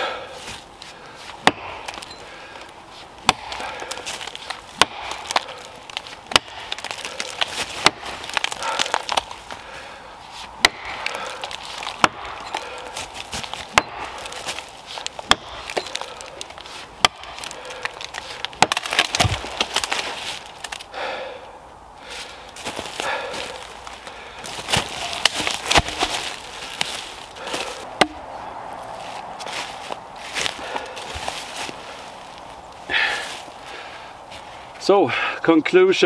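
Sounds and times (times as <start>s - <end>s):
axe chopping wood: 1.3s - 2.1s, 3.2s - 9.6s, 10.6s - 20.9s, 24.4s - 28.4s.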